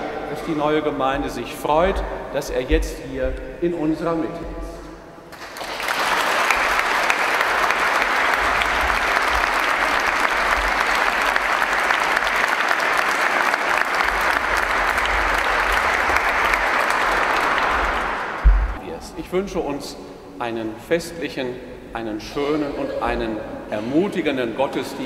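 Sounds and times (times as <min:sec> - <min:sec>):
congregation applauding: 0:05.3 - 0:18.8.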